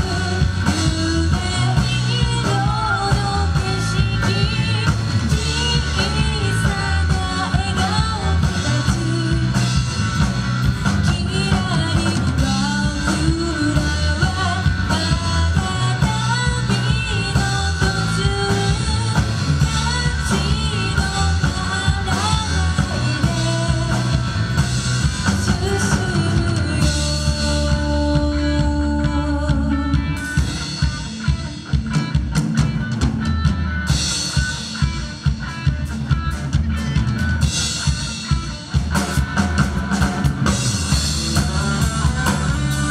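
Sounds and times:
woman singing: 0.0s - 10.0s, 10.8s - 24.6s, 25.2s - 30.4s, 41.4s - 42.9s
rock band playing: 0.0s - 42.9s.

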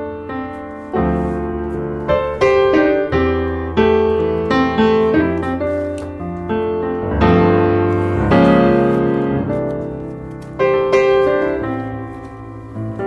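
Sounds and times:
slow piano music: 0.0s - 13.0s.

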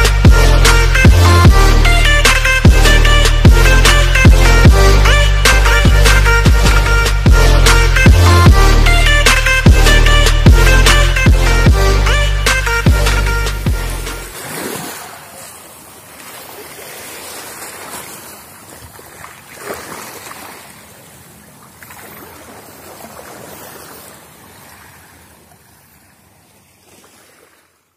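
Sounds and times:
small waves washing on shore: 13.7s - 27.9s.

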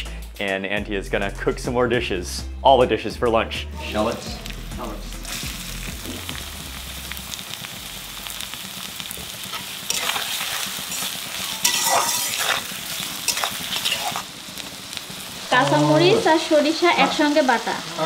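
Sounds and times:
shallots sizzling in oil: 3.8s - 18.0s
metal spatula scraping pan: 9.5s - 14.2s.

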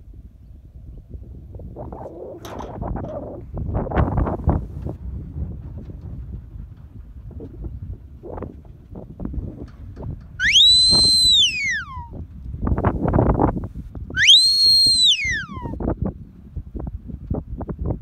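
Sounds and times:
high whistle commands: 10.4s - 12.1s, 14.2s - 15.8s.

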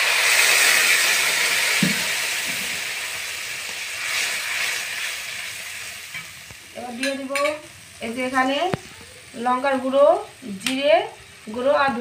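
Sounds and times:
water splashing into hot oil: 0.0s - 6.7s
oil hissing and sizzling in wok: 0.0s - 12.0s.

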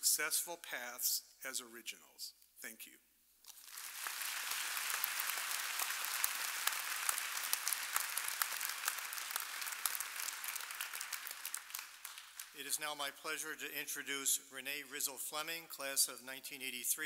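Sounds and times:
audience applauding: 3.5s - 12.8s.

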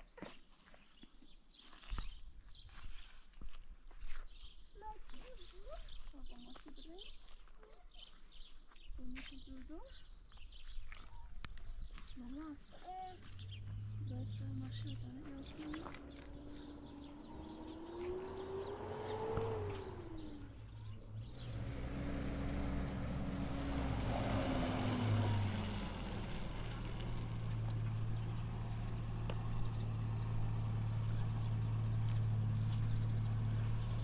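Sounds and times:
tyres crunching on gravel: 0.1s - 34.0s
pickup truck engine: 13.2s - 34.0s.

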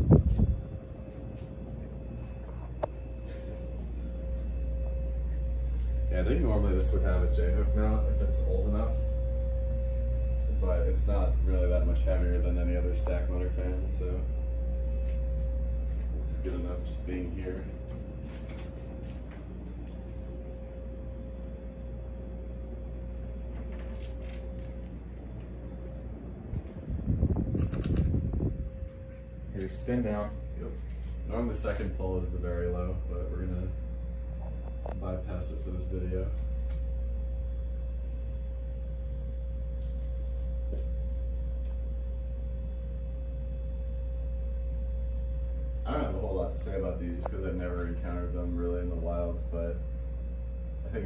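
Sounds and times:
ceiling fan air swish: 0.0s - 7.2s
faint whine: 0.0s - 51.0s
low hum: 0.0s - 51.0s.

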